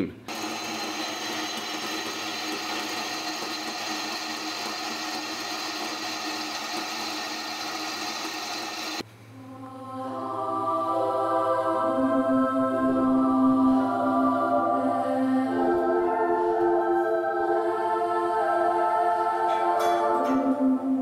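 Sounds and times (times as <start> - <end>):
electric drill cutting steel: 0.3 - 9.0.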